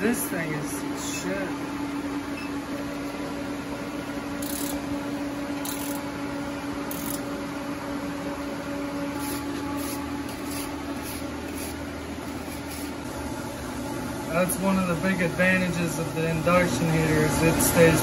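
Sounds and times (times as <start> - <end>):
induction heater humming: 0.0 - 18.0
wire brush scrubbing metal: 9.1 - 13.0.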